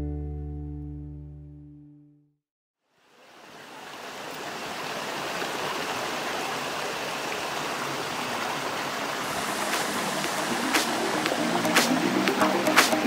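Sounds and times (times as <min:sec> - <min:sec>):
rushing flowing water: 0:03.0 - 0:13.0.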